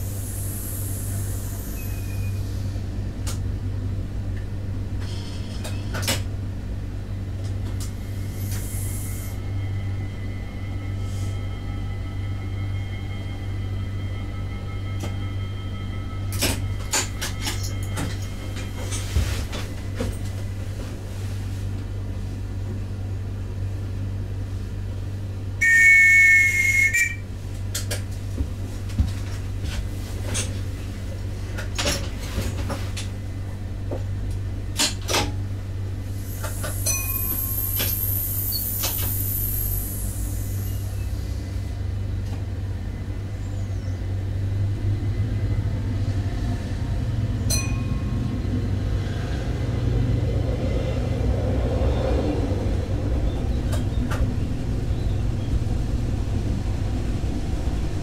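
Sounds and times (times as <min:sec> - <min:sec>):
train engine drone: 0:00.0 - 0:58.0
high thin whine: 0:25.6 - 0:27.2
loud two-tone signal: 0:25.6 - 0:27.3.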